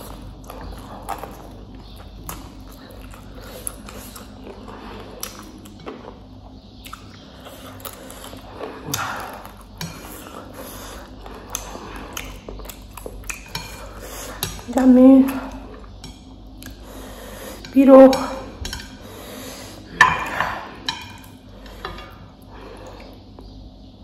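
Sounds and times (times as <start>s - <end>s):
person chewing food: 0.0s - 14.7s, 15.5s - 17.8s.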